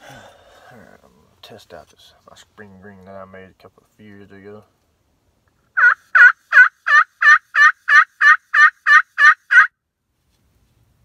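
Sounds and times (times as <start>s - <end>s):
turkey call yelps: 5.8s - 9.7s.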